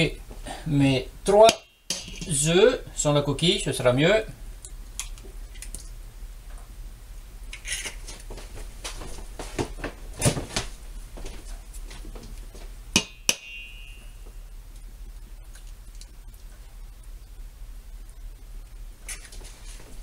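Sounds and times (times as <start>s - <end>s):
metal bowl ringing: 13.0s - 14.4s.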